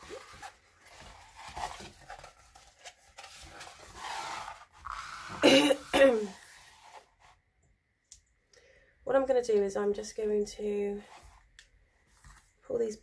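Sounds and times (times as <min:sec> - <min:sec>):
plastic film rustling and crinkling: 0:00.0 - 0:07.0.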